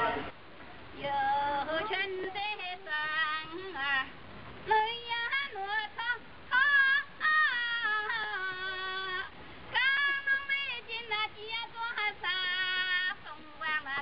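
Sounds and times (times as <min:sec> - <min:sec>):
woman singing: 0:01.0 - 0:14.0.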